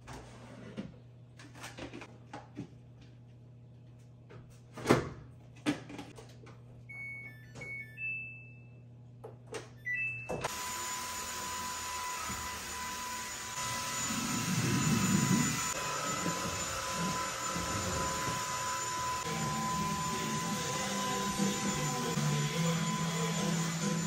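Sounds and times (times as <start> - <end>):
vacuum cleaner humming: 10.4 - 24.0.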